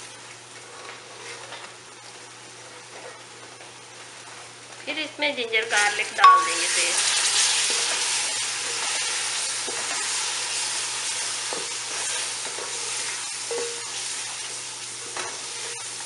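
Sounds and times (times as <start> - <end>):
food sizzling in oil: 0.0 - 16.0
wooden spoon scraping a pot: 0.6 - 1.8.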